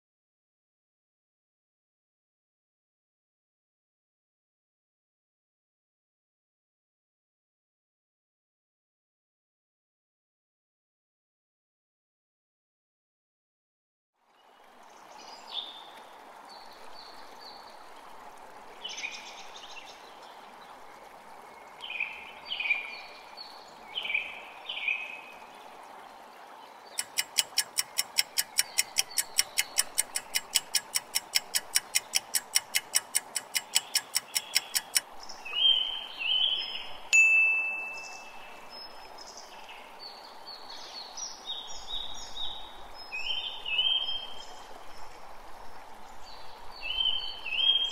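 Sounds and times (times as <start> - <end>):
birds chirping: 26.7 - 44.4
countdown clock ticking: 27.0 - 35.0
high ringing tone: 37.2 - 38.5.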